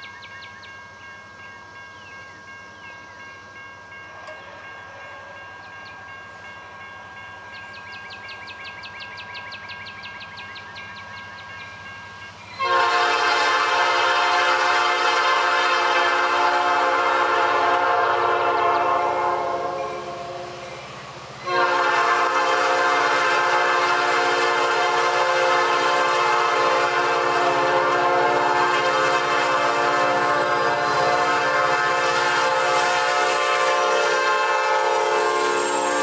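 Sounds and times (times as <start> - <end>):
locomotive air horn blasts: 12.6 - 20.6, 21.5 - 36.0.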